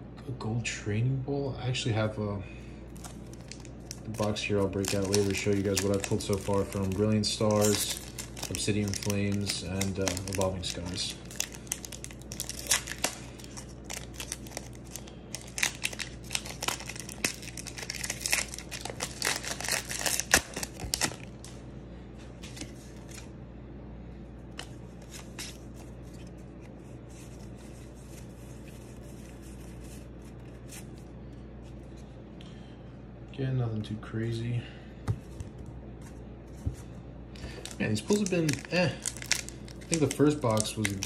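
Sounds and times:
foil pack tearing and crinkling: 3.0s - 21.5s, 37.4s - 41.0s.

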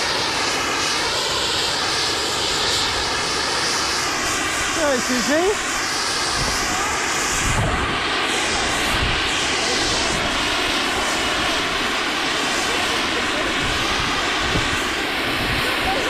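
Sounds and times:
wind buffeting microphone: 4.6s - 16.0s.

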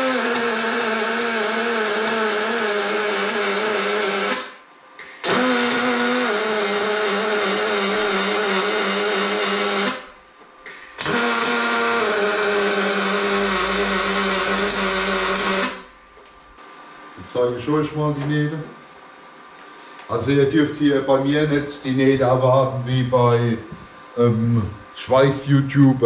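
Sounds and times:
welding arc buzzing: 0.0s - 18.6s.

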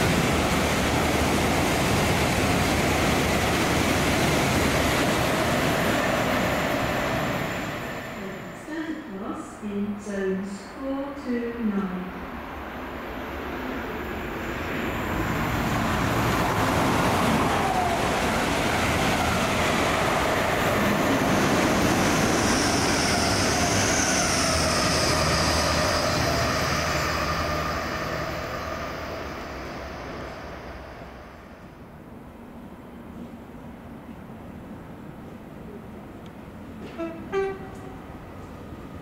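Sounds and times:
train wheels rushing on rails: 0.0s - 9.4s, 12.8s - 31.7s.

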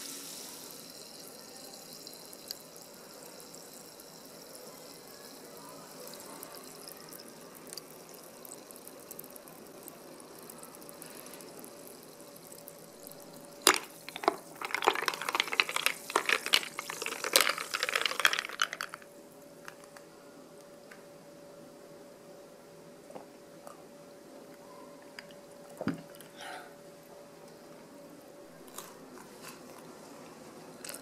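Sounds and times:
drink fizzing in a glass: 0.0s - 19.1s
spoon clinking against ice and glass: 13.3s - 19.0s.

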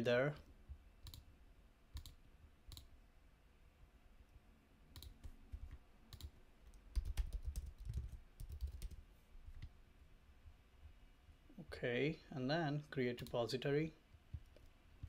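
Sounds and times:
computer keyboard typing: 1.0s - 1.3s, 2.0s - 2.9s, 5.0s - 9.0s.

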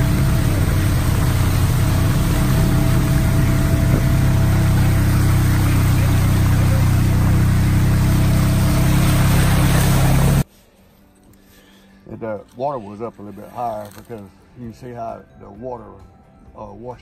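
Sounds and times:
vehicle engine humming: 0.0s - 10.4s.

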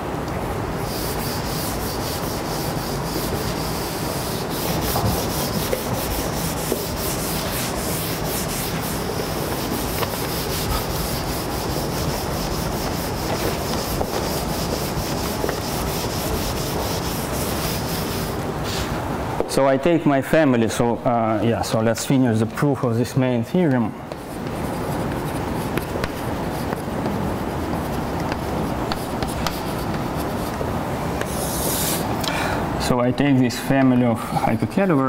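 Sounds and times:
eraser rubbing on chalkboard: 0.8s - 18.4s, 24.2s - 32.1s.

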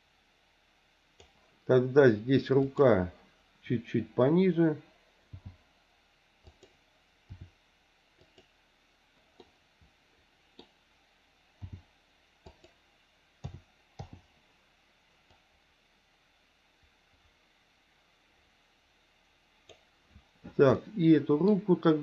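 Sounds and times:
computer mouse clicks: 1.2s - 1.4s, 6.4s - 7.5s, 8.2s - 8.5s, 9.4s - 9.6s, 11.6s - 12.8s, 13.4s - 14.3s.

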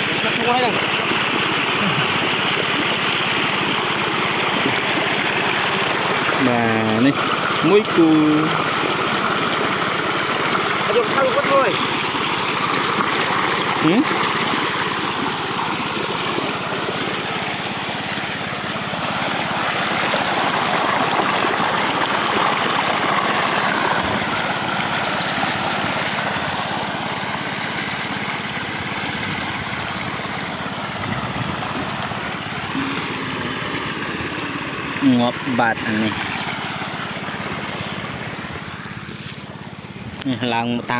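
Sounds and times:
muddy water gushing from hose: 0.0s - 40.9s
pump engine running: 0.0s - 40.9s.

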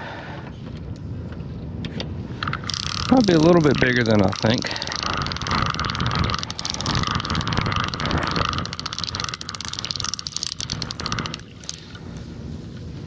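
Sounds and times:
fishing reel clicker ratcheting: 2.4s - 12.0s.

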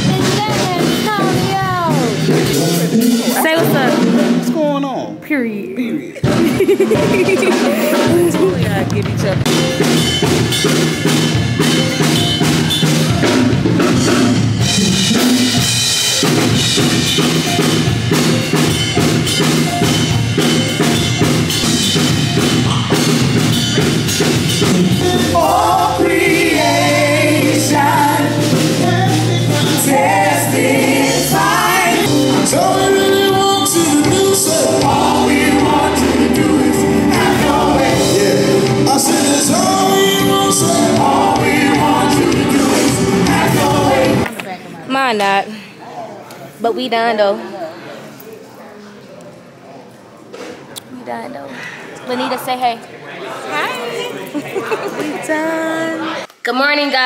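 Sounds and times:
drum kit and band playing: 0.0s - 45.4s
group of singers: 24.2s - 44.4s.

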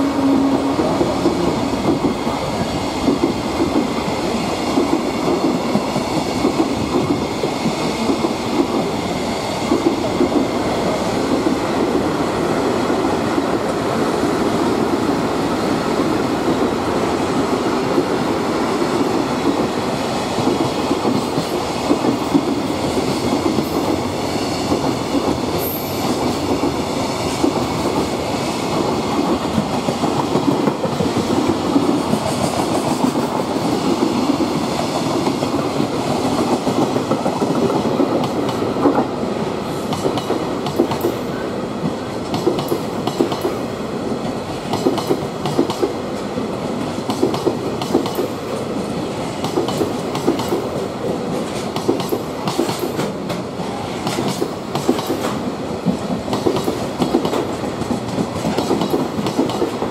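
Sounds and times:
train rumble: 0.0s - 59.9s
freight train wheels clattering: 17.3s - 43.7s, 44.3s - 59.9s.

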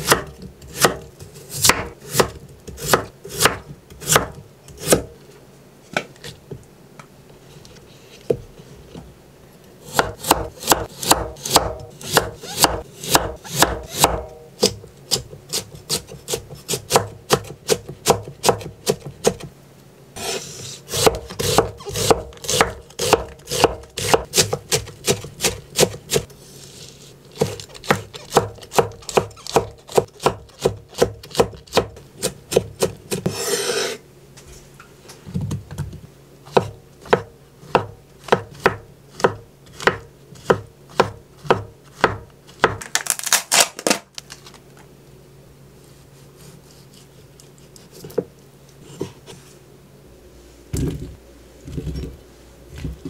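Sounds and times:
knife chopping vegetables on wood: 0.0s - 5.2s, 9.9s - 19.5s, 20.2s - 26.3s, 27.3s - 33.6s, 36.5s - 42.9s
knife blade scraping board: 20.2s - 25.2s, 33.2s - 34.0s.

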